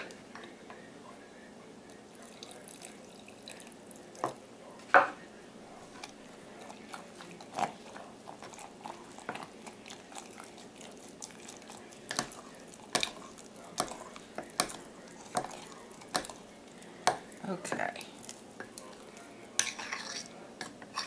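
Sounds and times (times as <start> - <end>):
utensil stirring in a glass jar: 18.2 - 21.0
clinks and scrapes against glass: 19.6 - 20.3.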